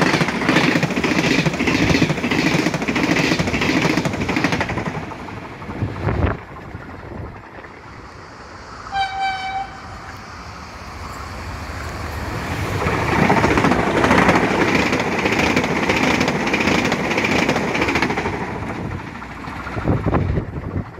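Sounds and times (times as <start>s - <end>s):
high-speed train rushing past: 0.0s - 20.9s
train horn blast: 8.9s - 10.1s.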